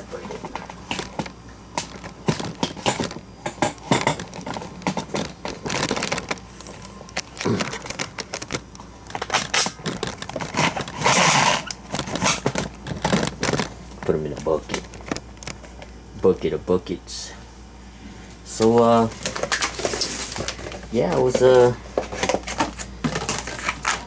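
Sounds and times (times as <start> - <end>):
plastic bag crinkling: 0.1 - 15.8, 19.0 - 24.0.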